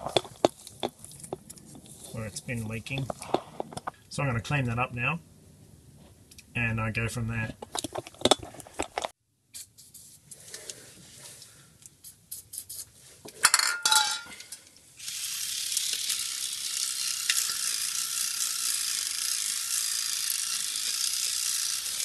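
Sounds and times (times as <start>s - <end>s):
clatter of clinks: 13.4s - 14.6s.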